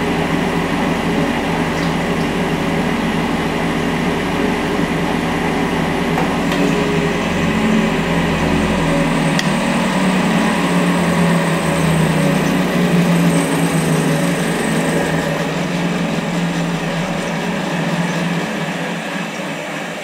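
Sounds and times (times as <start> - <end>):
washing machine drum spinning: 0.0 - 20.0.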